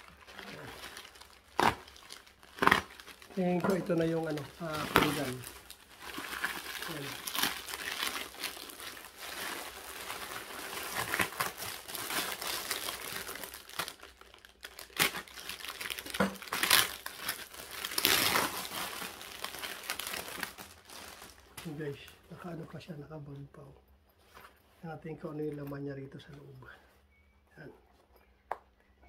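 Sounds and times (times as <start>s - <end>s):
packaging crinkling: 0.0s - 22.1s.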